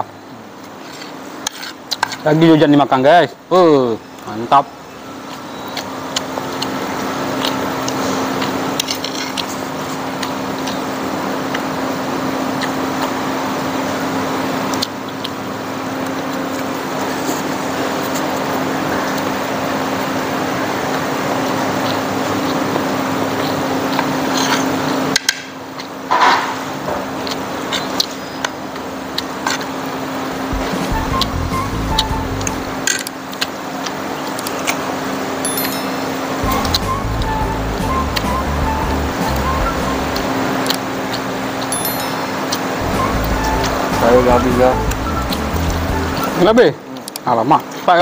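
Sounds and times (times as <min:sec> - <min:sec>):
motor hum: 0:28.7 - 0:33.1, 0:35.4 - 0:46.6.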